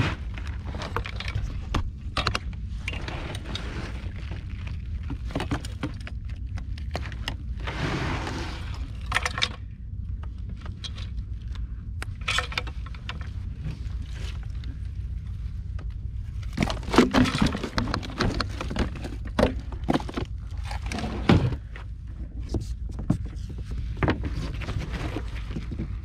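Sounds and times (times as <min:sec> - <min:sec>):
low rumble: 0:00.0 - 0:26.0
clicks and scrapes of handling: 0:15.7 - 0:26.0.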